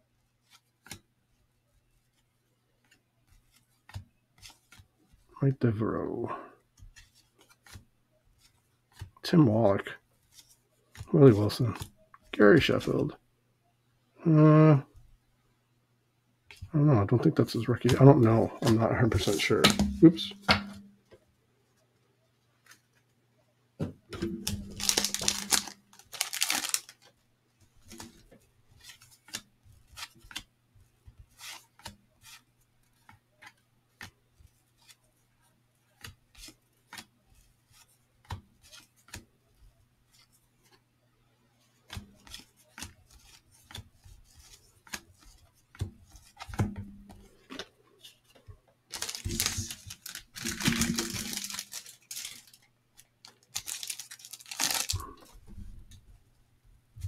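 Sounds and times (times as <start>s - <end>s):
trading cards clicking and sliding: 6.8s - 9.1s, 24.2s - 27.1s, 41.7s - 55.3s
cellophane wrapper tearing and crinkling: 24.4s - 27.1s, 48.9s - 55.2s.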